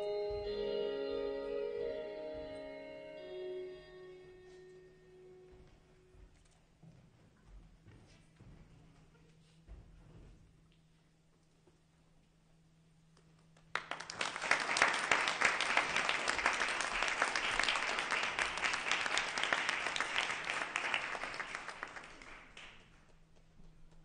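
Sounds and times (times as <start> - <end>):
audience applauding: 13.7 - 23.1.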